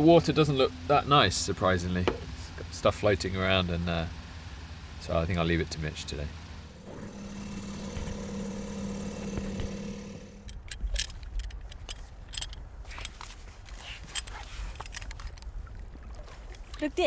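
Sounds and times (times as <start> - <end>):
small outboard motor running: 5.2 - 10.6
low rumble: 6.7 - 11.7.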